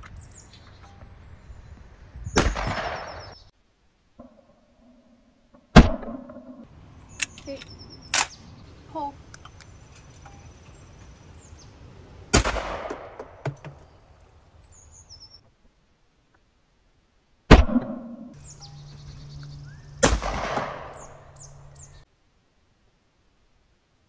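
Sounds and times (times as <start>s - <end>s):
shotgun blasts with echo: 2.3s - 3.4s, 5.7s - 6.5s, 12.3s - 13.4s, 17.5s - 18.3s, 20.0s - 21.2s.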